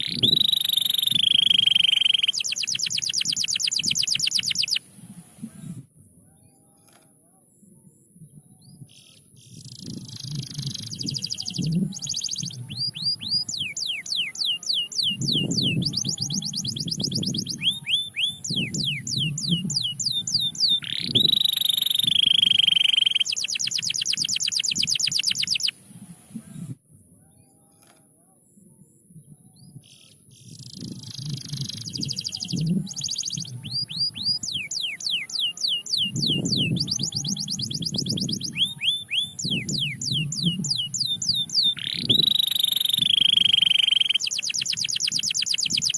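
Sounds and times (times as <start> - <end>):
canary singing trills: 0.0 - 4.9, 8.6 - 25.8, 29.6 - 45.9.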